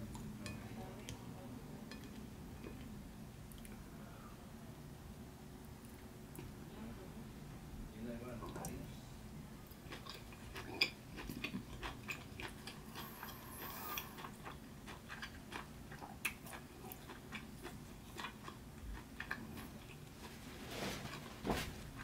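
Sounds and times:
chewing with wet mouth clicks: 3.5s - 3.8s, 9.6s - 20.2s.

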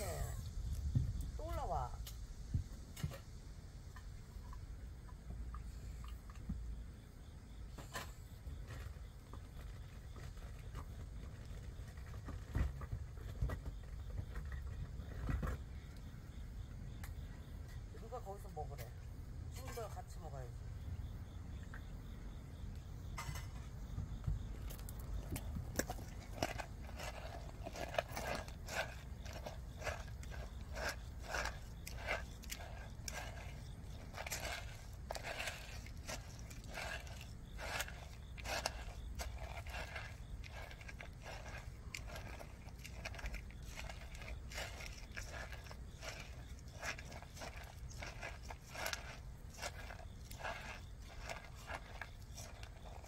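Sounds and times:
cat eating wet food: 24.7s - 53.0s.

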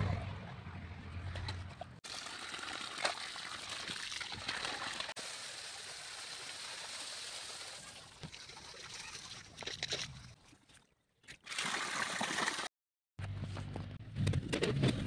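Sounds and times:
water gushing from a pipe: 2.0s - 9.9s, 11.4s - 12.7s.

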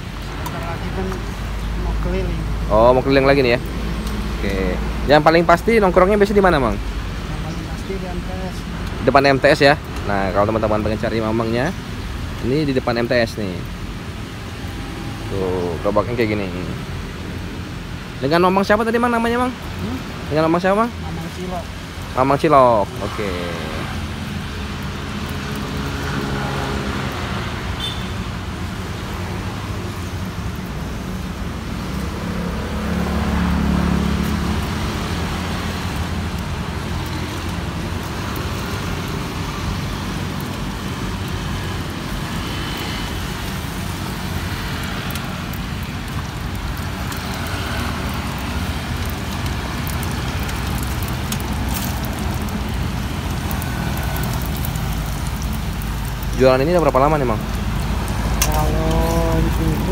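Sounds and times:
road traffic rumble: 0.0s - 59.9s
vehicle passing: 19.7s - 59.9s.

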